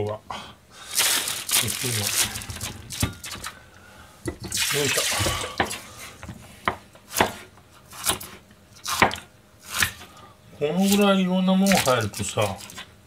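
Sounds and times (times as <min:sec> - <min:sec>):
knife chopping on plastic board: 0:06.6 - 0:10.0.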